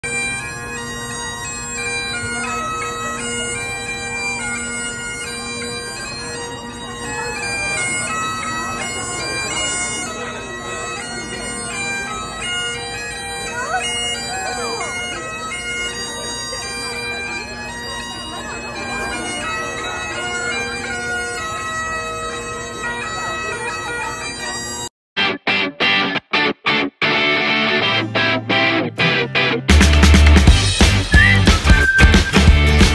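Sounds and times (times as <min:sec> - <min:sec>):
bagpipe chanter melody: 0:00.0 - 0:24.9, 0:30.4 - 0:32.9
bagpipe drones humming: 0:00.0 - 0:24.9
bystanders' voices: 0:00.0 - 0:24.9, 0:25.5 - 0:32.9.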